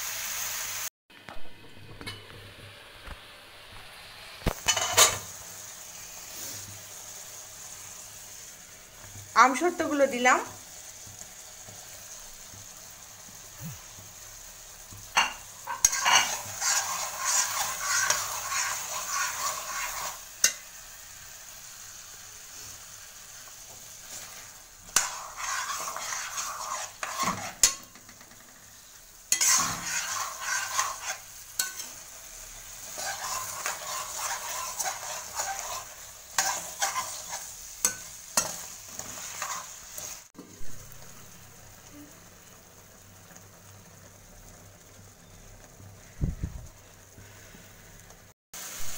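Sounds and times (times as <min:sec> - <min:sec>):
chutney sizzling: 0:00.0 - 0:48.9
metal spatula scraping a pan: 0:04.6 - 0:05.4, 0:15.2 - 0:20.6, 0:23.6 - 0:28.4, 0:29.3 - 0:40.3.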